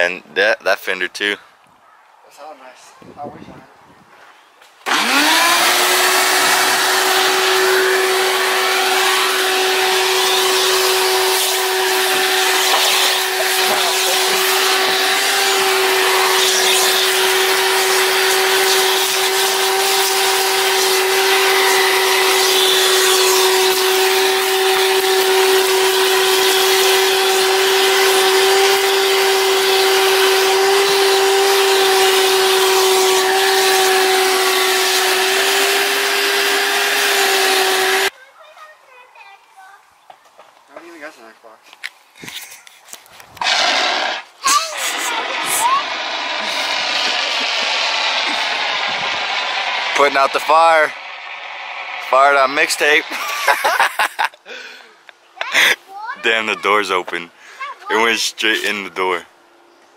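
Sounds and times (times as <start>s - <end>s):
shop vacuum running: 4.9s - 38.1s, 43.4s - 54.0s.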